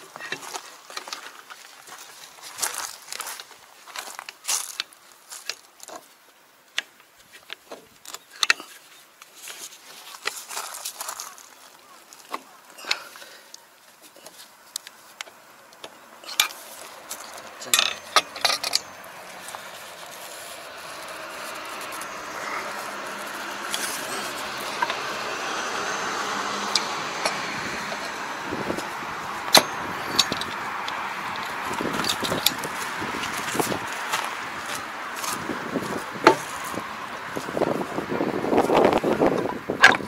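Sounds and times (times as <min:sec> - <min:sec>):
steady rushing noise: 0:16.1 - 0:39.8
hand tools clinking on metal: 0:16.2 - 0:25.9, 0:26.5 - 0:34.2.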